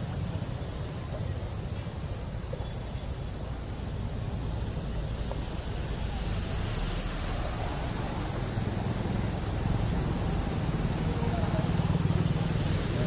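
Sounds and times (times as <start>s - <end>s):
water splashing under wheels: 0.0s - 13.0s
motorbike engines running: 8.6s - 13.0s.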